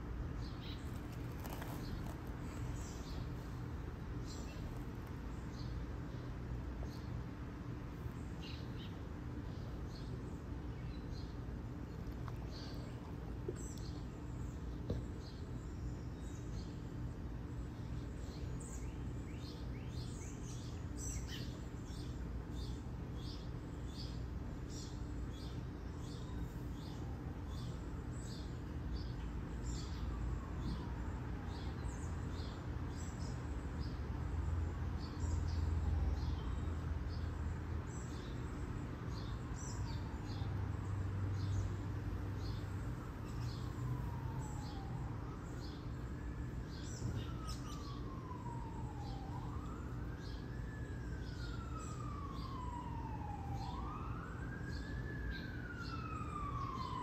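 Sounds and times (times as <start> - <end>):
low steady hum: 0.0 - 57.0
distant siren wailing: 25.6 - 33.4, 34.0 - 37.9, 38.6 - 57.0.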